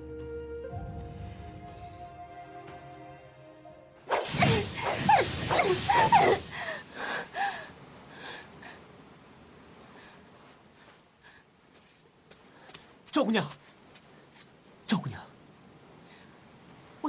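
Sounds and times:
woman panting and gasping: 4.4s - 8.5s.

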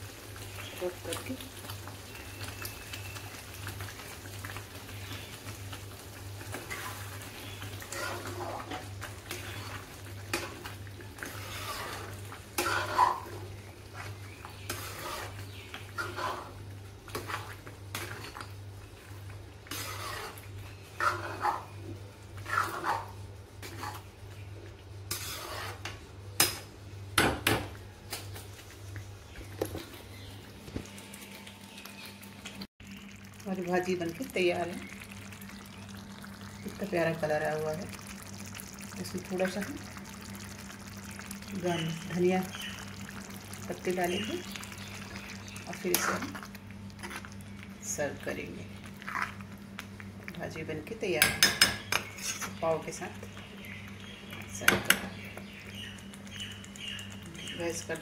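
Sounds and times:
metal spatula scraping metal pan: 7.9s - 9.8s, 11.2s - 13.3s, 14.7s - 15.4s, 16.0s - 18.2s, 19.7s - 20.4s, 21.0s - 21.7s, 22.4s - 24.1s, 25.1s - 25.9s.

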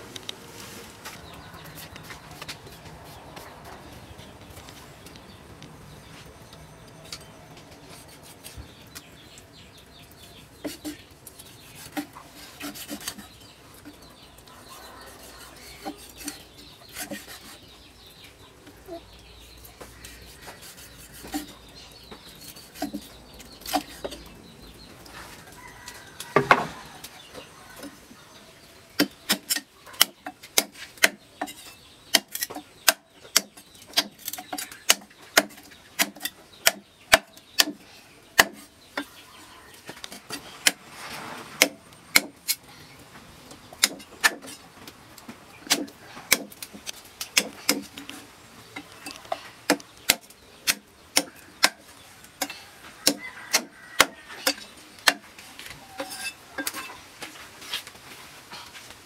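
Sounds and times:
cleaver chopping on wooden block: 29.0s - 37.8s, 38.4s - 38.7s, 41.6s - 42.4s, 43.8s - 44.5s, 45.6s - 46.7s, 47.4s - 48.0s, 49.7s - 51.8s, 52.4s - 55.2s.

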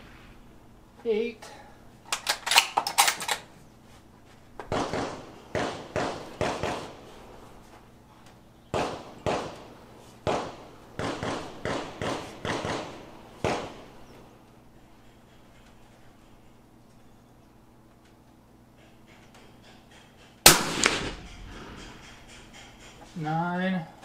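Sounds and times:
echoing gunshots: 4.7s - 7.1s, 8.7s - 14.0s, 20.4s - 23.2s.

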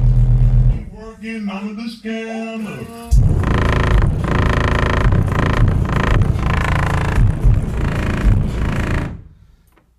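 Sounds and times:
bass-heavy music through subwoofer: 0.0s - 9.4s.

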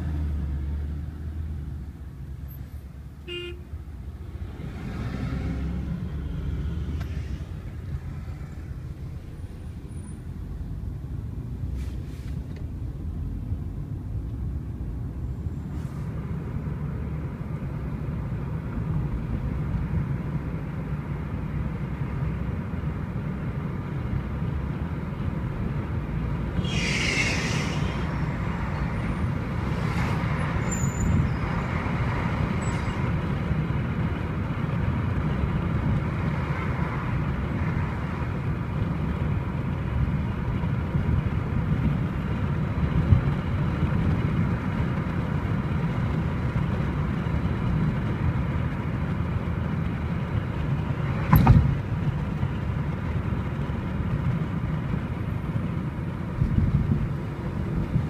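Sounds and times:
car engine and road rumble: 0.0s - 58.0s
vehicle horn toot: 3.2s - 3.7s.

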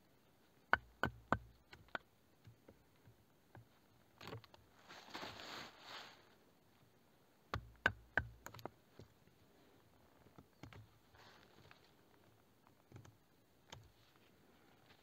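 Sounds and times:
sharp clicks and knocks: 0.7s - 4.6s, 7.5s - 9.1s
faint rustling: 3.8s - 6.9s, 9.3s - 12.6s.

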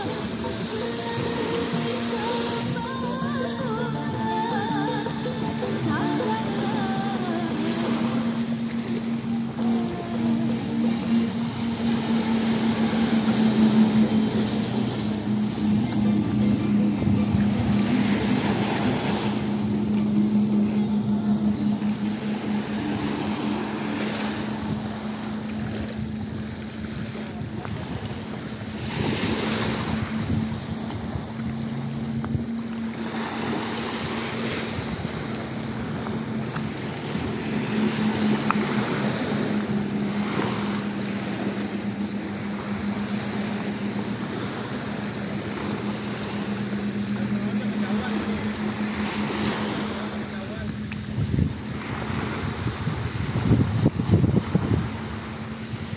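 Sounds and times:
outboard engines droning: 0.0s - 55.9s
rushing water: 0.0s - 55.9s
wind gusts on microphone: 20.8s - 36.2s, 49.2s - 55.9s.

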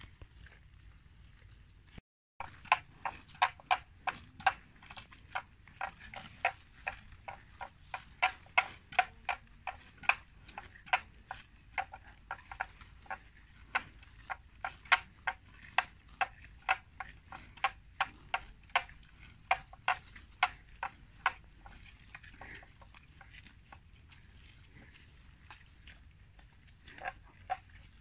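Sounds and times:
grass being cropped and torn: 2.4s - 11.7s.

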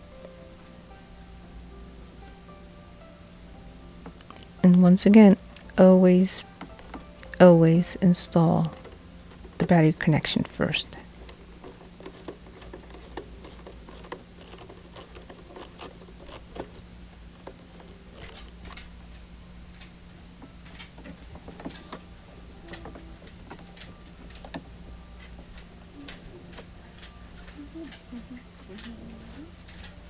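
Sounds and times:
faint low hum: 0.0s - 30.0s
wires being handled: 4.0s - 28.1s, 28.7s - 30.0s.

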